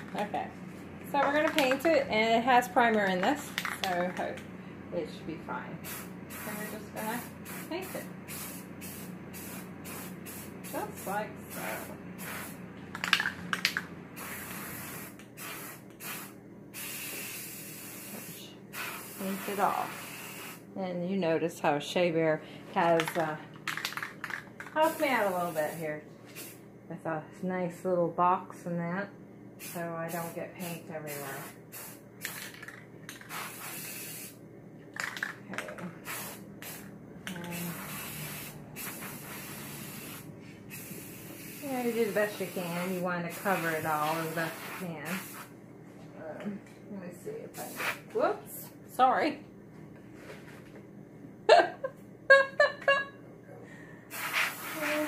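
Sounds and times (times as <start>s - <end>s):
spray paint can hissing: 5.8s - 20.6s, 23.0s - 25.8s, 26.4s - 26.6s, 29.6s - 30.4s, 31.0s - 34.4s, 36.0s - 45.5s, 47.6s - 48.0s, 54.1s - 55.0s.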